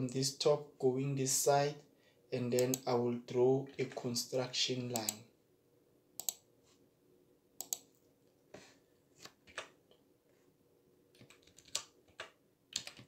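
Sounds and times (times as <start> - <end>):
mouse and keyboard clicks: 2.6 - 2.8, 6.2 - 6.4, 7.6 - 7.9.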